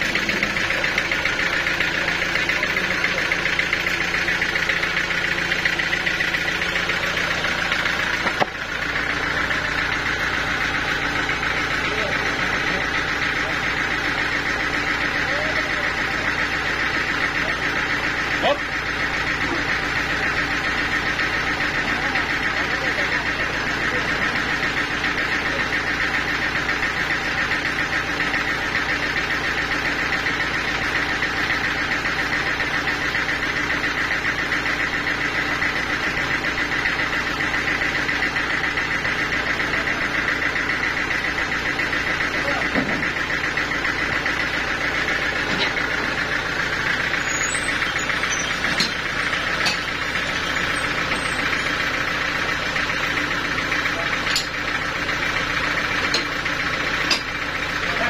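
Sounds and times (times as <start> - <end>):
sawmill machine drone: 0.0 - 58.0
sharp clicks and knocks: 8.2 - 8.6, 48.5 - 50.0, 54.2 - 54.6, 56.0 - 56.4, 57.0 - 57.4
saw blade whine: 32.0 - 58.0.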